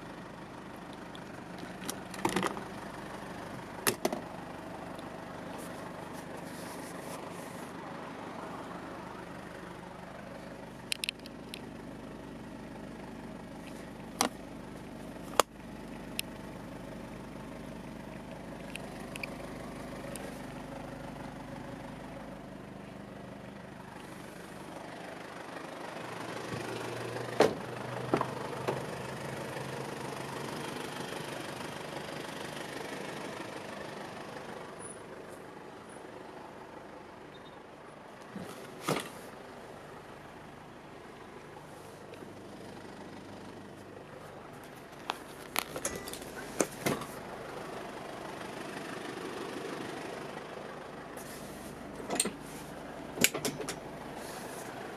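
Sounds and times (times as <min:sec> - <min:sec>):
diesel engine idling: 0:00.0 - 0:54.9
sharp clicks and knocks: 0:53.2 - 0:53.8.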